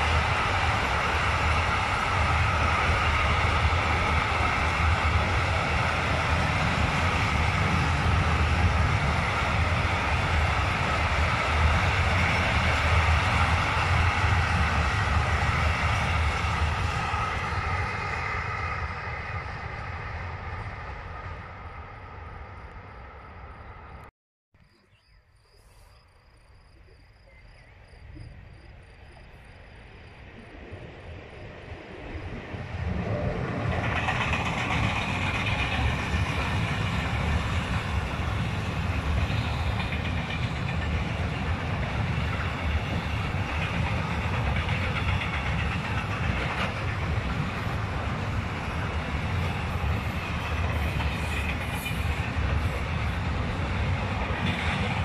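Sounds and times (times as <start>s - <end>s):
freight train passing: 0.0s - 24.1s, 27.2s - 55.0s
wheels clattering on rail: 33.1s - 55.0s.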